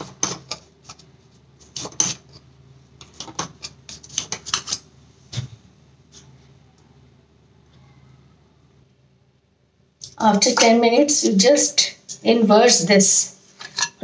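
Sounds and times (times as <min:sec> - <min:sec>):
knife scraping metal tin: 0:03.3 - 0:04.8.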